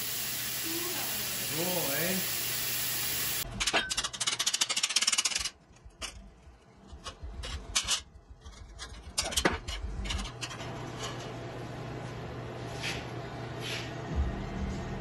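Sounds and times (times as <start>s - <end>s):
steel clinking and scraping: 3.5s - 11.4s.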